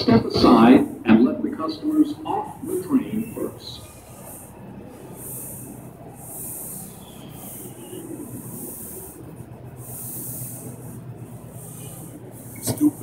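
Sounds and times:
high hissing: 2.8s - 12.6s.

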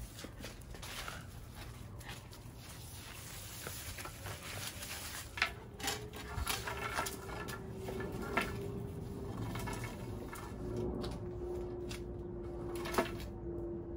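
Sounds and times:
claws scuffling: 0.0s - 12.0s
broom bristles scraping concrete: 0.0s - 13.3s
sharp knocks and scrapes: 3.0s - 13.4s.

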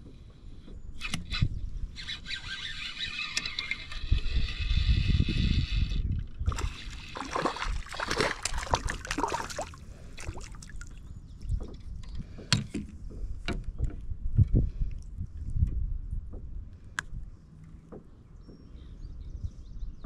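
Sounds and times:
steady whir: 0.9s - 8.2s
water splashing against kayak: 6.5s - 11.0s.

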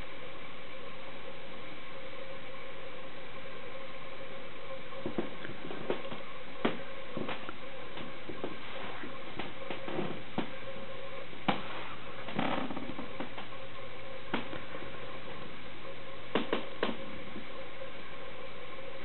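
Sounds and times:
faint hum: 0.0s - 19.0s
soft rustle: 7.1s - 10.6s, 11.6s - 13.4s.

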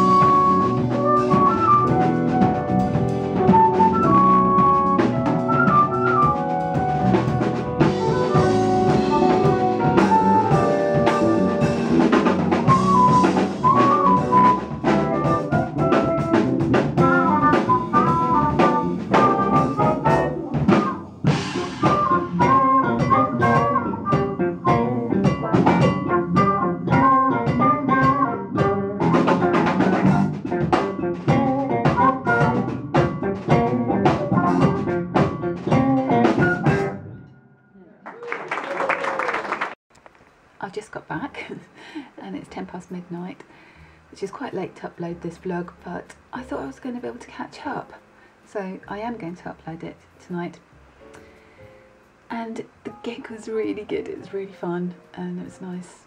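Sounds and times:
drum kit: 0.0s - 37.1s
electric bass: 0.0s - 37.3s
electric guitar: 0.0s - 37.3s
keyboard: 0.0s - 38.0s.

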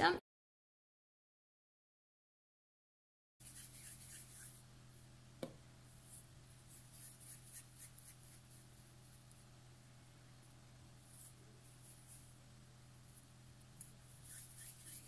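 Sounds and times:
hands rolling dough: 5.4s - 15.0s.

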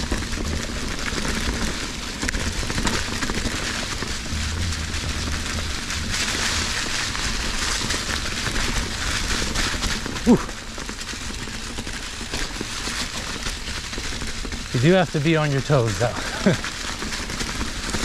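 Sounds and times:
bike tyres rustling on dirt: 0.0s - 18.0s
low rumble on camera: 2.4s - 9.3s.

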